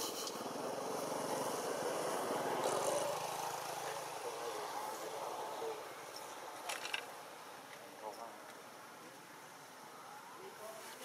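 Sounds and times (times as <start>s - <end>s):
engine droning past: 0.0s - 6.2s.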